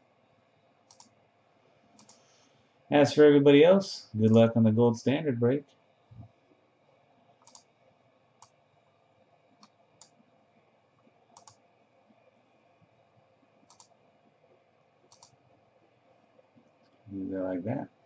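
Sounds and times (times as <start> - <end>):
computer mouse clicks: 0.9 - 1.2, 2.0 - 2.3, 7.4 - 7.7, 8.4 - 8.6, 9.6 - 10.2, 11.3 - 11.6, 13.6 - 14.0, 15.0 - 15.4.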